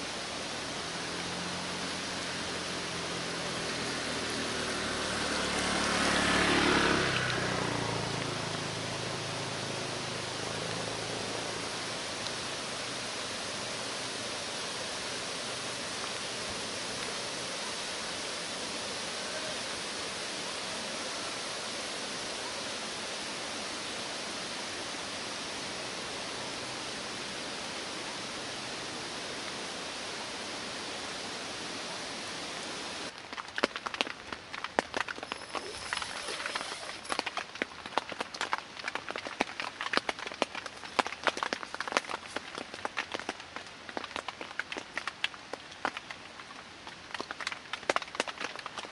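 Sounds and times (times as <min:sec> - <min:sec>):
rain falling over forest: 0:00.0 - 0:48.9
tent fabric crackling and rustling: 0:33.0 - 0:46.1, 0:47.0 - 0:48.9.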